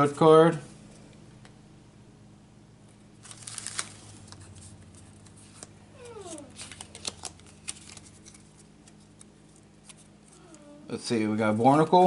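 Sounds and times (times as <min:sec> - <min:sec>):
trading cards rustling and snapping: 0:03.2 - 0:10.6.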